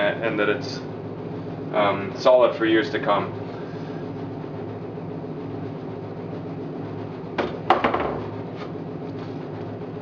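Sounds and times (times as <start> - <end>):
steady low hum: 0.0 - 10.0
wooden knocks and clack: 7.4 - 8.3.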